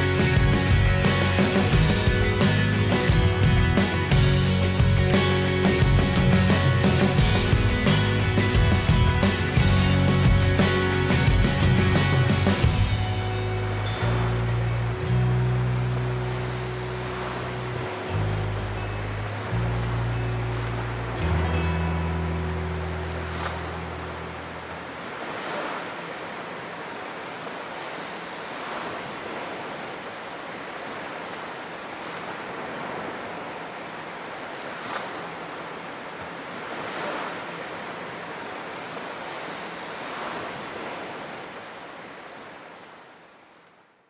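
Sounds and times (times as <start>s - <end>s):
music track: 0.0s - 25.0s
waves breaking on a beach: 0.0s - 44.0s.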